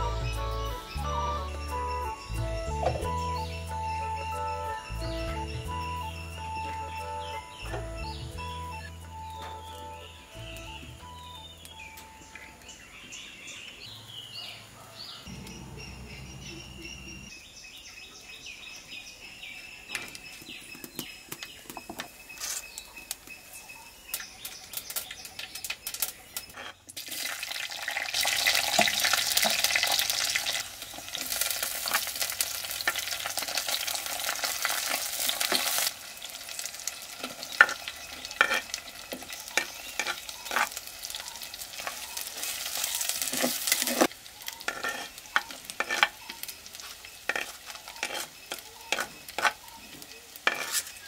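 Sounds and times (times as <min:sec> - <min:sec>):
garlic sizzling in hot oil: 0:24.1 - 0:51.0
oil crackling and popping: 0:24.1 - 0:51.0
wooden spoon stirring: 0:37.2 - 0:51.0.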